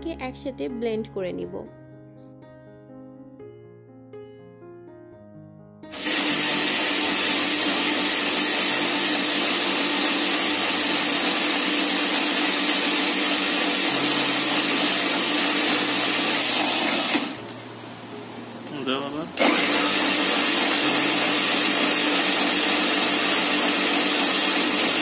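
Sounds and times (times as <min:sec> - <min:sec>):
blender motor running: 0:05.9 - 0:17.6, 0:19.4 - 0:25.0.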